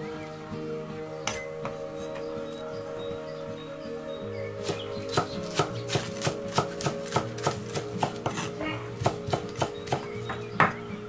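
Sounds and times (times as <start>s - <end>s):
cleaver chopping on wooden board: 4.6s - 10.8s.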